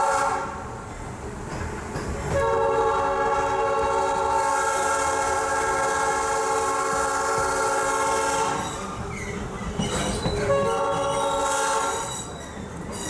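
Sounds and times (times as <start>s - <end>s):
locomotive air horn chord: 0.0s - 0.6s, 2.4s - 8.7s, 10.5s - 12.1s
train low running rumble: 0.0s - 13.0s.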